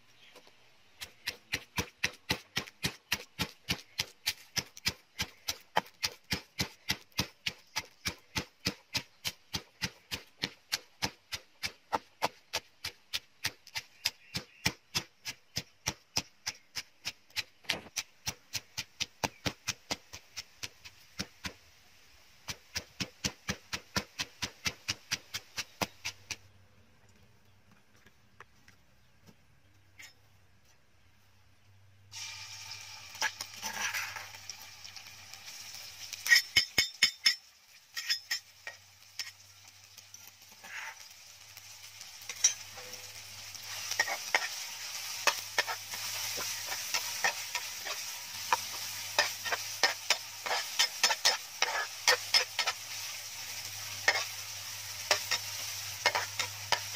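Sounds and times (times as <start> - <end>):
pestle pounding in stone mortar: 1.0 - 21.6, 22.5 - 26.4.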